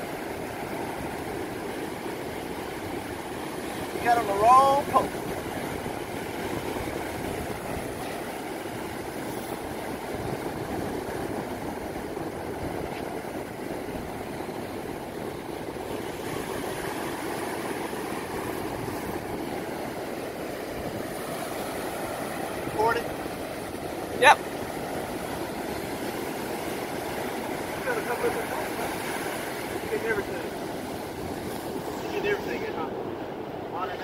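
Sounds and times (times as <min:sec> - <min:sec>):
ocean surf breaking: 0:00.0 - 0:34.0
wind: 0:00.0 - 0:34.0.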